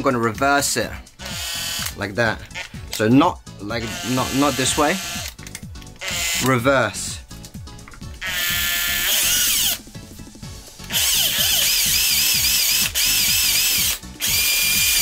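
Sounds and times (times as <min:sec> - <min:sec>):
electric drill whining: 0:01.2 - 0:02.9, 0:03.8 - 0:05.4, 0:06.0 - 0:06.5, 0:08.2 - 0:09.9, 0:10.8 - 0:15.0.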